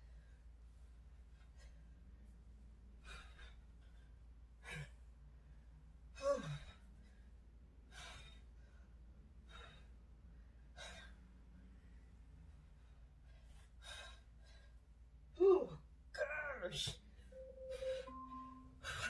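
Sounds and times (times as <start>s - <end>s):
woman breathing hard: 2.9s - 15.0s
woman grunting: 6.2s - 6.7s.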